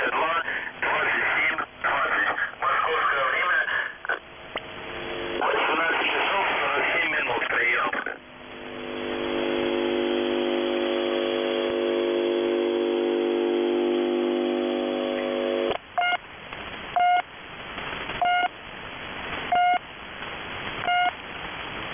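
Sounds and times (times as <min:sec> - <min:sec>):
radio static: 0:00.0 - 0:18.6
chord of low tones: 0:08.2 - 0:15.8
short high beeps: 0:18.2 - 0:18.5, 0:19.5 - 0:19.8, 0:20.9 - 0:21.2.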